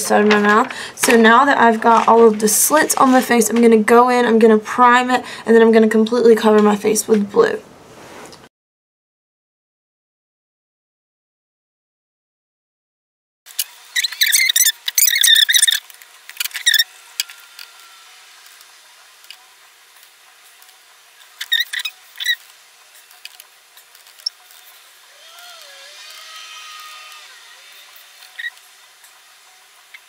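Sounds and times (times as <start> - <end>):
faint high squeaks: 13.9 - 15.8, 16.4 - 18.2, 24.2 - 28.6
rustling and clicking: 20.0 - 24.8.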